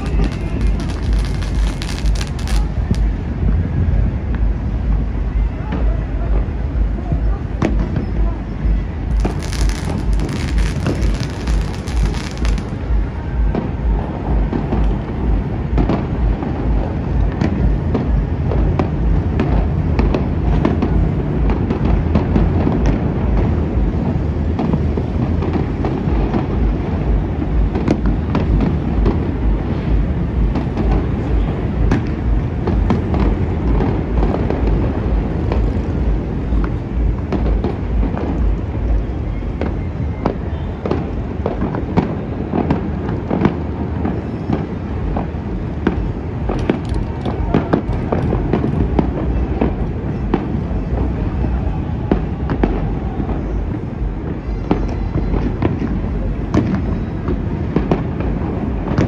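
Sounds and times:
sharp firework cracks: 0.0 - 3.4, 9.1 - 13.8
fireworks booming and crackling: 0.0 - 59.0
low rumble: 0.0 - 59.0.

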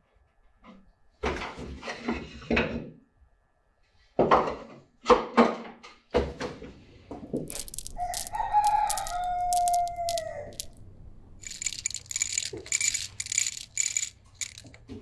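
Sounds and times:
rooster crowing: 7.9 - 10.7.

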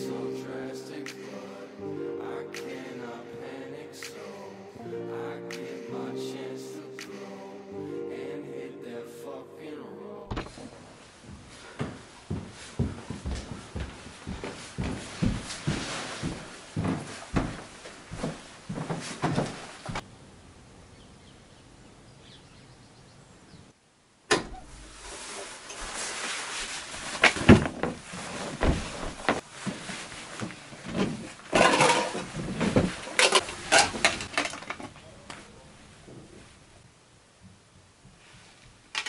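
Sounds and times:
footsteps going down stairs: 10.4 - 20.0, 26.6 - 31.6
rustling of rummaging: 24.9 - 35.0.

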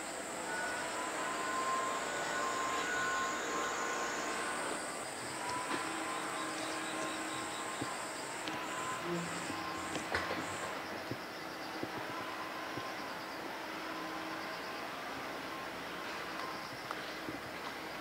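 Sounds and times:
high-pitched buzz: 0.0 - 11.1
faint steady tones: 0.0 - 18.0.

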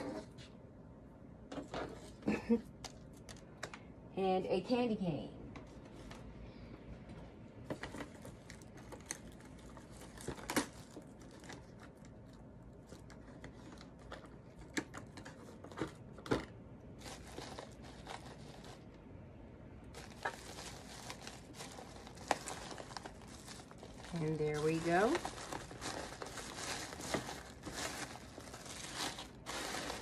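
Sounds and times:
paper and plastic crinkling: 7.6 - 19.0, 19.9 - 30.0.

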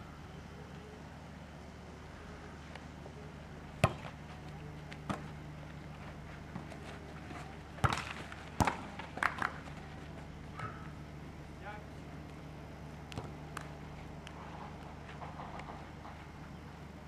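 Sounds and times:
volleyball smacks: 3.8 - 4.2, 7.8 - 9.6, 13.1 - 13.7.

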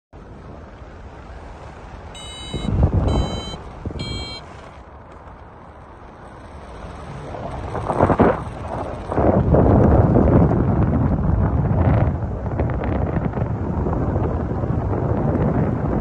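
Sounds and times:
wind buffeting microphone: 0.2 - 16.0
variometer beeping: 2.1 - 4.8.

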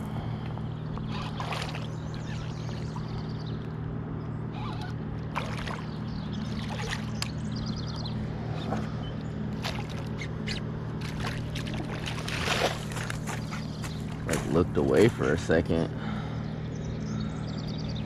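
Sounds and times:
low steady hum: 0.0 - 18.0
fish splashing in water: 1.0 - 3.2, 5.3 - 7.3, 9.6 - 14.4.

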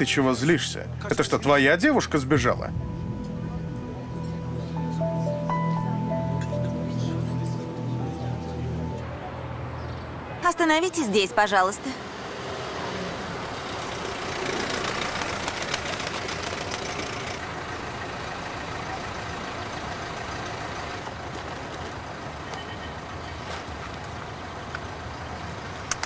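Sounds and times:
road noise: 0.0 - 26.0
car engine running: 13.2 - 22.3.

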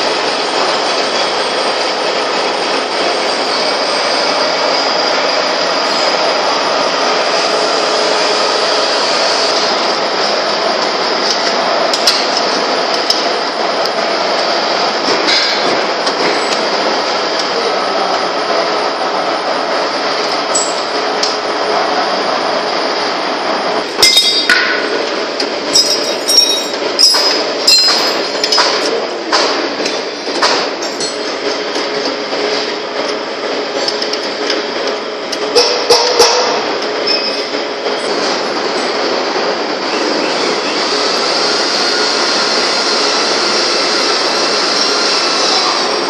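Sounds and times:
workshop background noise: 0.0 - 46.0
wrench clinking on steel frame: 24.0 - 24.6, 25.7 - 28.8.

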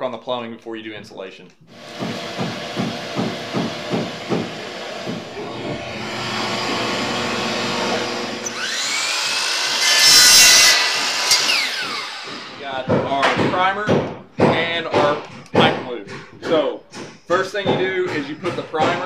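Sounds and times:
miter saw cutting plastic pipe: 1.8 - 12.8
shop vacuum rushing: 1.8 - 12.8.

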